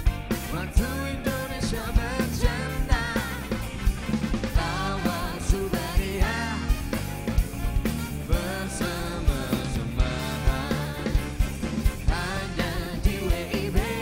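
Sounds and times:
drum kit beat: 0.0 - 14.0
person singing: 0.5 - 3.6, 4.6 - 6.8, 8.2 - 11.4, 12.1 - 14.0.

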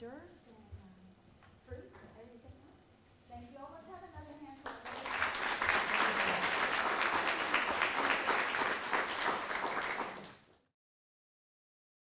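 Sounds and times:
audience applauding: 4.7 - 10.6.

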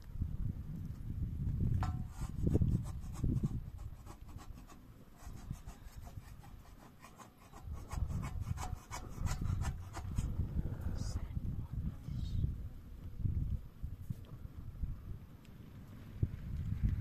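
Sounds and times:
low rumble: 10.2 - 17.0.

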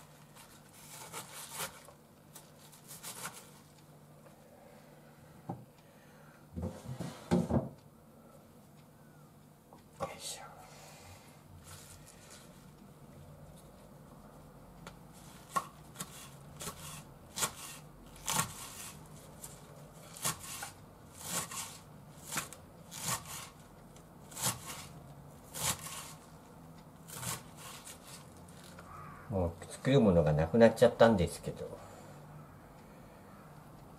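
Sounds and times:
knife slicing cabbage on board: 0.8 - 1.9, 2.8 - 3.6, 15.2 - 23.6, 24.2 - 26.2, 27.1 - 28.3.

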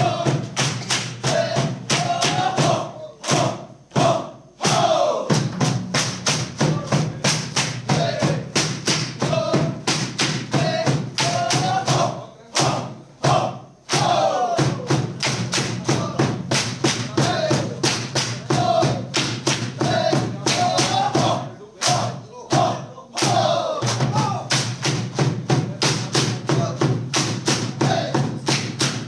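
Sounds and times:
voices chanting: 0.0 - 5.7, 6.3 - 29.0
bamboo poles clapping and knocking: 15.2 - 15.8.

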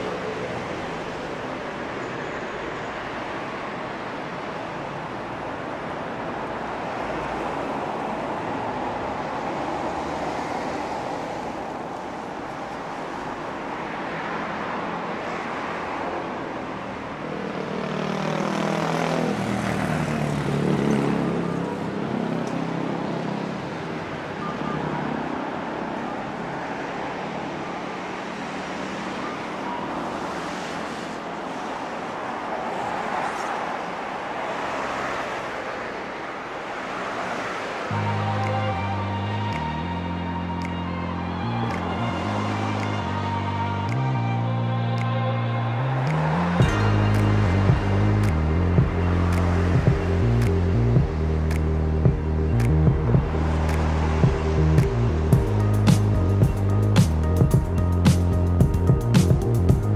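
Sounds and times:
road traffic: 0.0 - 59.9
engine passing by: 37.2 - 59.9.

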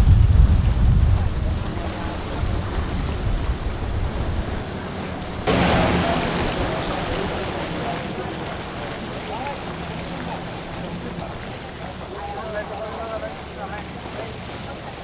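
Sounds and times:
wind on microphone: 0.0 - 11.6
motorboat rumble: 0.0 - 15.0
water rushing past: 0.0 - 15.0
loud rushing hiss: 5.5 - 7.8.

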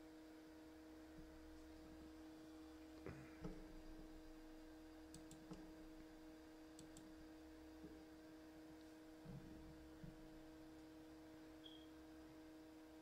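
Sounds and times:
faint electrical hum: 0.0 - 13.0
faint computer mouse clicks: 5.1 - 5.6, 6.8 - 7.1.

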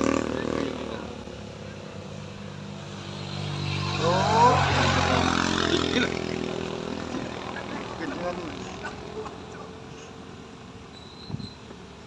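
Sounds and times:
scooter engine revving hard: 0.0 - 1.2, 3.1 - 9.8.

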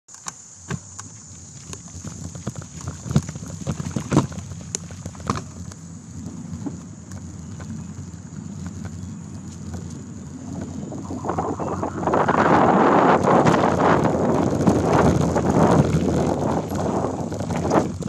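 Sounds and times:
high-pitched hiss: 0.1 - 4.6, 10.4 - 13.9
bike rattling clicks and knocks: 0.1 - 11.0, 12.9 - 18.0
bike tyre rumble on dirt: 0.1 - 18.0.

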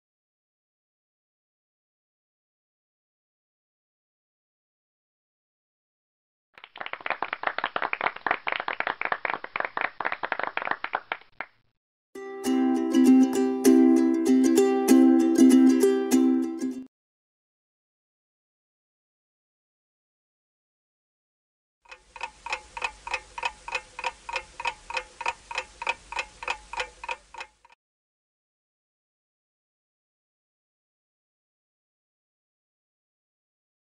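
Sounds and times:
small crowd clapping: 6.6 - 11.6
plucked-string music jingle: 12.2 - 16.9
clock ticking: 21.9 - 27.8.

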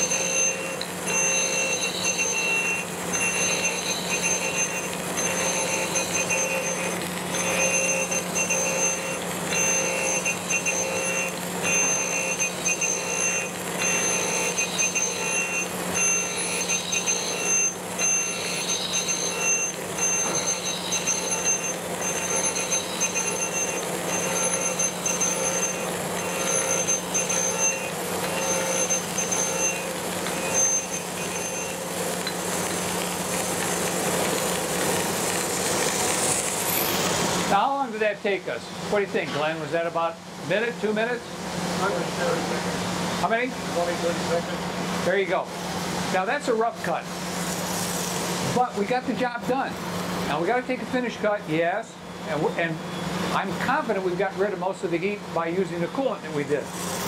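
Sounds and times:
grinding wheel screech: 0.0 - 32.4
spindle motor humming: 0.0 - 39.2.

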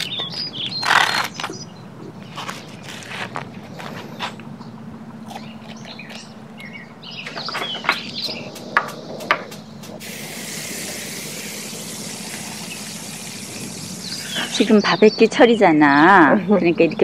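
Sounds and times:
food sizzling on grill: 10.0 - 14.7.

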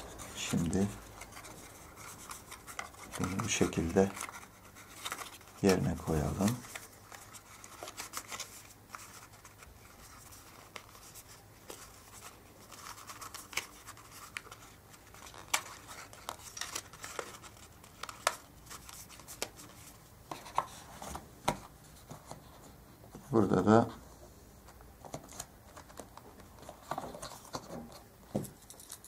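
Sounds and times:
cardboard packet being folded: 0.0 - 21.2.

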